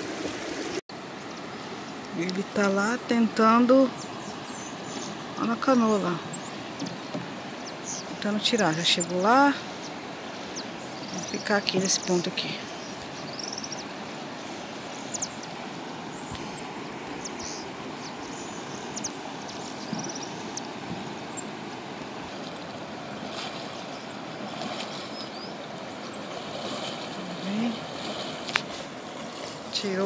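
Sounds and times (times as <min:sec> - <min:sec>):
river water rushing over rocks: 0:12.7 - 0:30.0.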